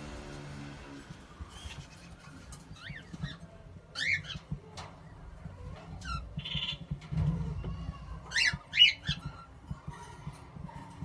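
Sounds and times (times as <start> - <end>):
high squeaky bird calls: 1.4 - 4.5, 6.0 - 6.9.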